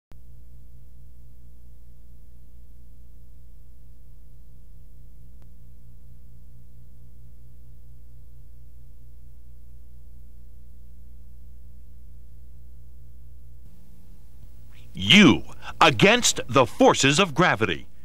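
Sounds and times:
low electrical hum: 0.2s - 18.0s
faint click: 5.4s - 5.6s
faint hiss: 13.6s - 18.0s.

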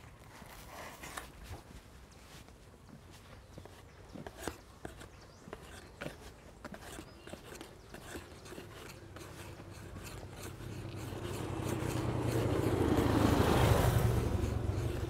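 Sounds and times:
vehicle passing by: 10.0s - 15.0s.

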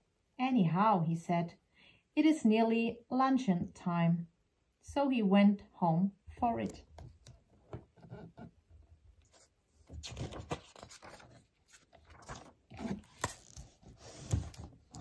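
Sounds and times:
book pages rustling: 9.2s - 15.0s.

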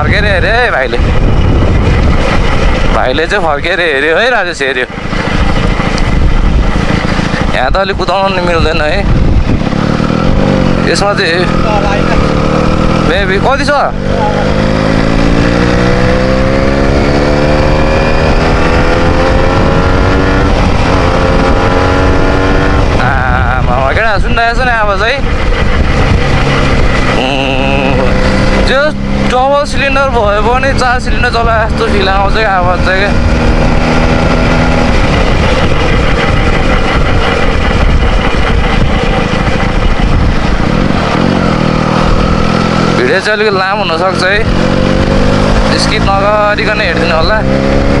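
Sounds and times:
motorcycle engine accelerating: 0.0s - 48.0s.

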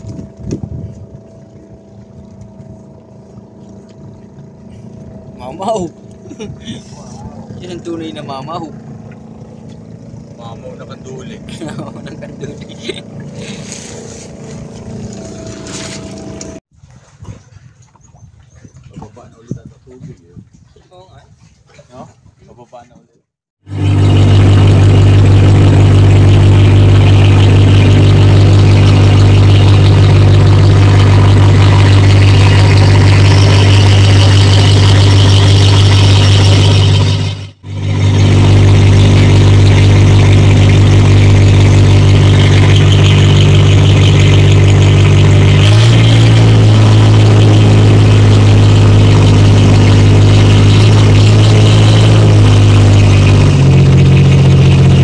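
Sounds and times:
motor boat engine droning: 0.0s - 17.2s, 23.6s - 55.0s.

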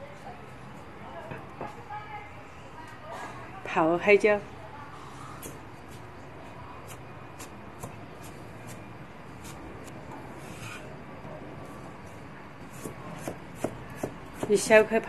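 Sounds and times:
knife scrape: 9.4s - 9.6s, 10.3s - 11.0s
knife chopping on wooden board: 12.7s - 14.5s.

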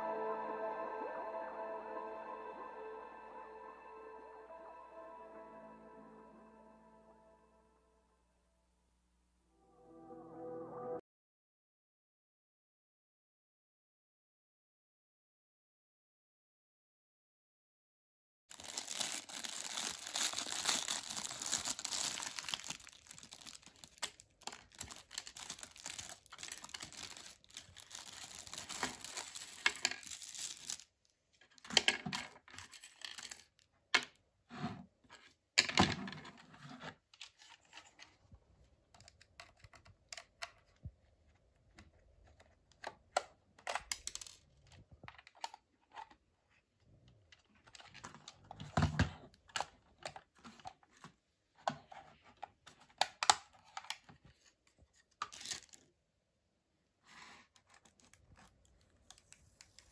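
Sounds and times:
plastic bags crinkling: 18.5s - 30.9s, 32.8s - 33.6s, 44.0s - 44.4s, 55.3s - 55.8s.

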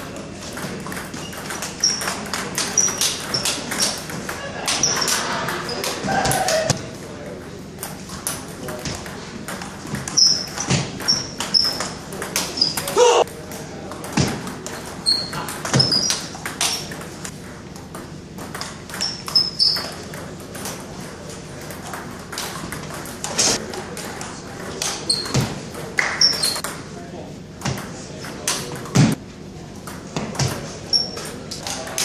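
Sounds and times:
sneakers squeaking on wooden floor: 0.6s - 6.9s, 9.8s - 13.2s, 14.2s - 17.2s, 18.9s - 20.3s, 24.8s - 26.6s, 30.2s - 31.4s.

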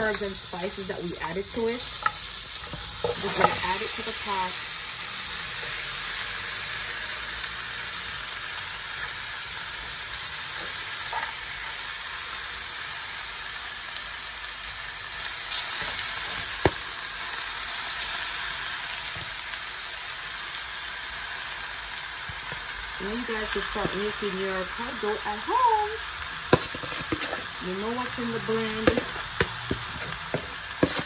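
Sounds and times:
meat sizzling in hot oil: 0.0s - 31.0s
fork scraping meat: 26.5s - 27.6s, 28.8s - 31.0s.

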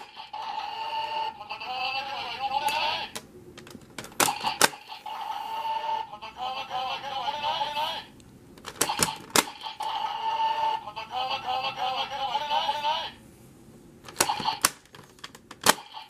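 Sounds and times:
toy gun clacking: 8.7s - 10.0s, 14.1s - 14.9s, 15.6s - 16.0s
echoing electronic voice and effects: 8.8s - 13.2s.

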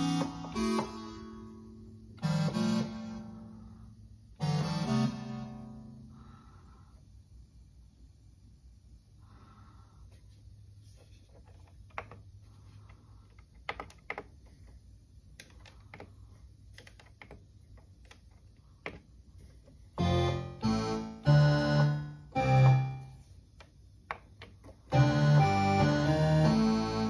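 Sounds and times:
synthesizer chords: 0.0s - 3.8s, 4.4s - 6.0s, 20.0s - 23.2s, 24.9s - 27.0s.

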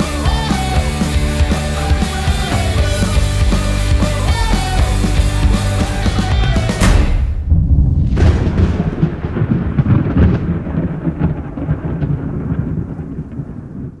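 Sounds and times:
thunder-like rumble with crack: 6.8s - 14.0s.

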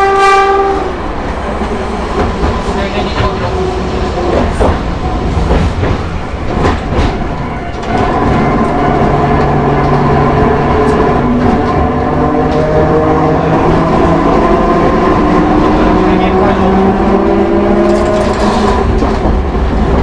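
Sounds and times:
tram wheels rumbling on rails: 0.0s - 20.0s.

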